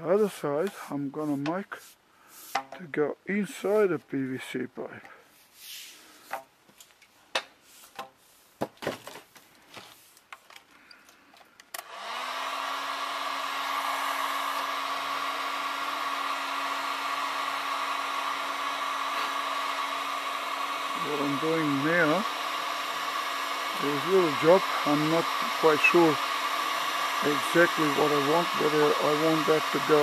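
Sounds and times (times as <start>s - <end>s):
heat gun fan whine and hiss: 11.8s - 30.0s.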